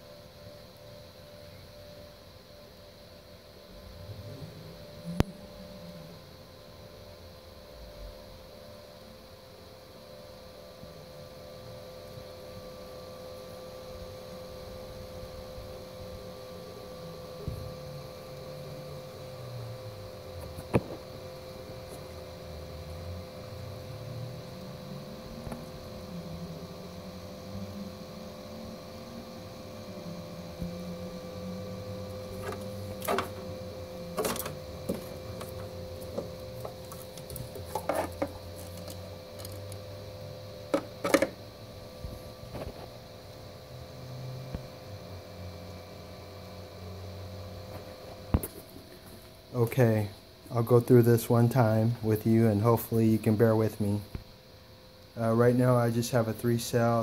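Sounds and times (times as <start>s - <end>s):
cooling fan humming: 0.0s - 57.0s
low wavering drone: 3.6s - 8.5s, 13.3s - 45.5s.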